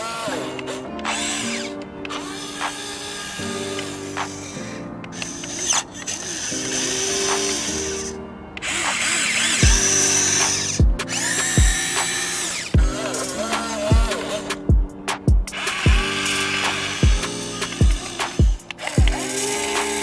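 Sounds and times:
servo motors whirring: 0.0s - 14.7s, 15.4s - 20.0s
electronic background music: 0.0s - 20.0s
kick drum thumping: 10.8s - 11.0s, 14.7s - 16.0s.

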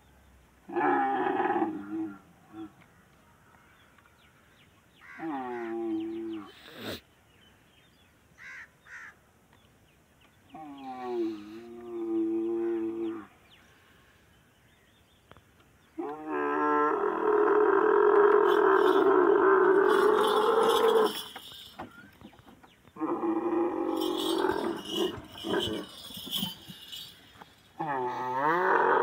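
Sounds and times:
camel bellowing: 16.0s - 21.8s, 23.0s - 29.0s.

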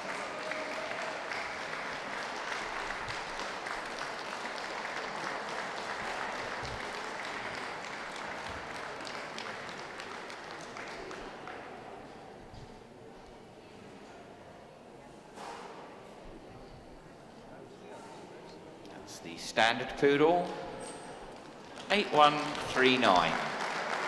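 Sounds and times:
audience applauding: 0.0s - 12.0s, 21.3s - 24.0s.

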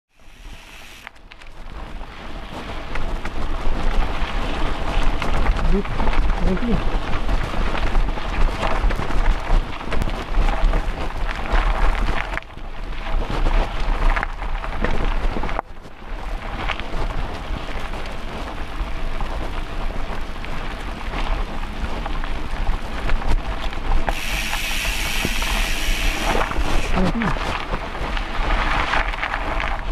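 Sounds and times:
bright hiss: 0.1s - 1.1s, 24.1s - 27.4s
bike tyres rattling on dirt trail: 0.1s - 29.9s.

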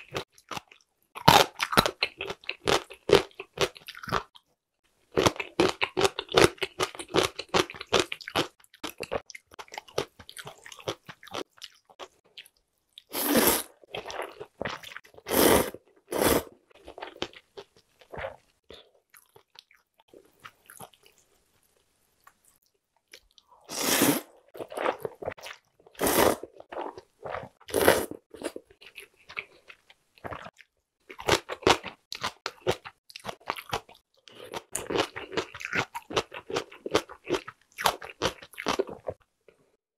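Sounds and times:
slurping noodles: 13.1s - 14.2s, 15.2s - 16.5s, 23.6s - 25.4s, 26.0s - 28.3s.

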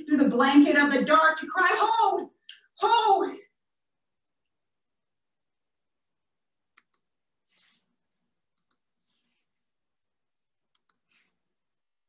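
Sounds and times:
computer mouse double-clicks: 6.7s - 7.1s, 8.5s - 8.8s, 10.7s - 11.1s.

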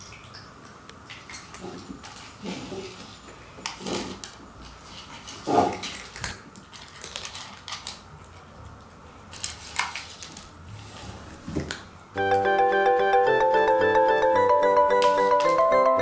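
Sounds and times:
cats crunching kibble: 3.6s - 10.7s
music: 12.2s - 16.0s.

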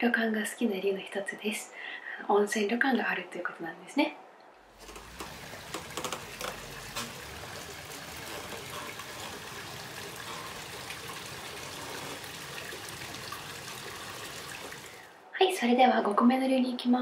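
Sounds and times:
water trickling and running: 4.7s - 15.2s.

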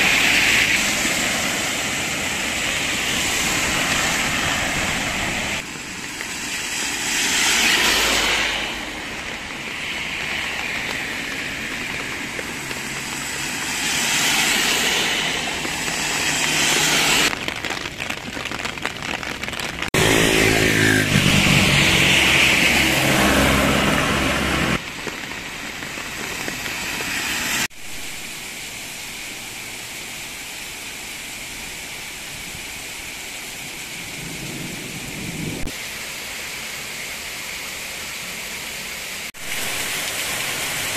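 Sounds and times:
tyres hissing through water: 0.0s - 17.4s, 19.8s - 40.9s
heavy rain: 0.0s - 40.9s
car engine passing: 6.7s - 10.5s, 20.0s - 24.8s.

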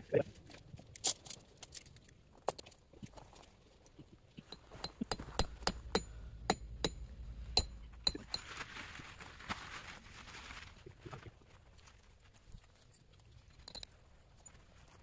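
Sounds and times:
hammer striking metal tent pegs: 4.4s - 8.6s
soft rustle: 7.2s - 15.0s.

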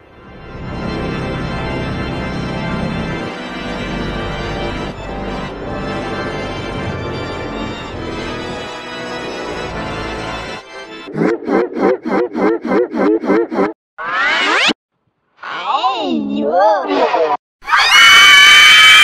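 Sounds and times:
sustained organ-like chords: 0.0s - 11.1s.

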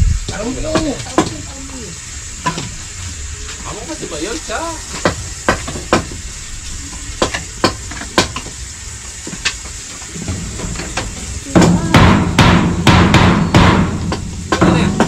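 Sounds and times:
hand tool knocking on bamboo: 11.5s - 15.0s.

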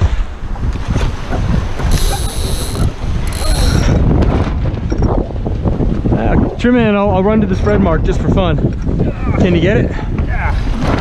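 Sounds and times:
water rushing: 0.0s - 4.8s
wind: 0.0s - 11.0s.

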